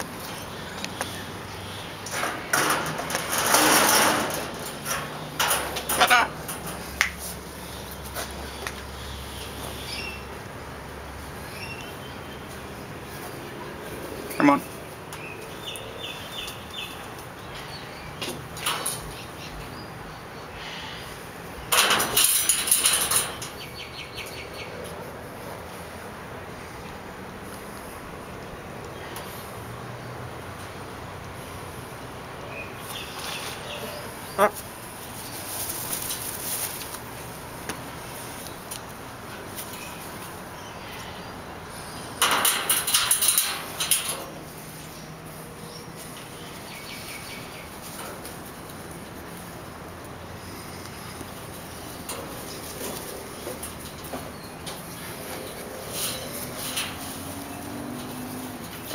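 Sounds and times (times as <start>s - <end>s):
parrot rattling wire mesh: 2.0s - 7.0s, 21.7s - 23.7s, 42.2s - 44.4s, 51.9s - 58.9s.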